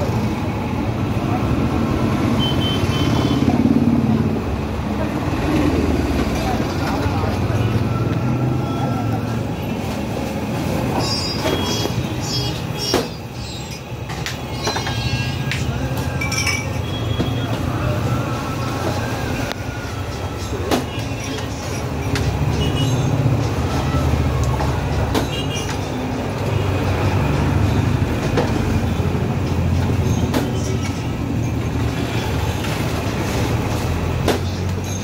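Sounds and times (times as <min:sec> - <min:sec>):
drinking glasses clinking: 0:16.2 - 0:17.0.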